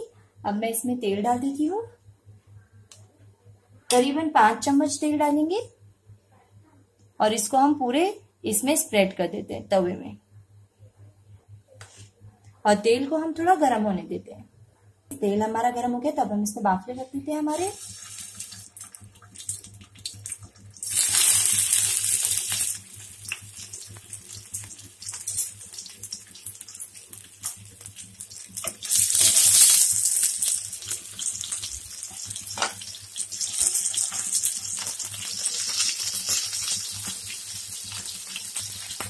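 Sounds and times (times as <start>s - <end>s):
dough balls sizzling in hot oil: 17.3s - 39.0s.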